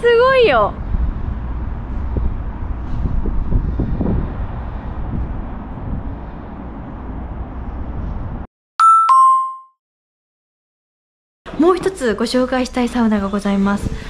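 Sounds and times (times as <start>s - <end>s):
distant traffic hum: 0.0s - 8.4s
city ambience rumble: 0.0s - 8.5s
two-note chime: 8.8s - 9.7s.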